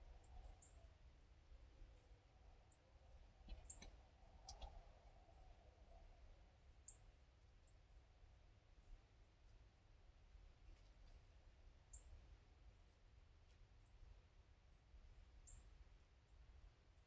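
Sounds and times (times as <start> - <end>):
soft clicks: 3.4 - 4.8.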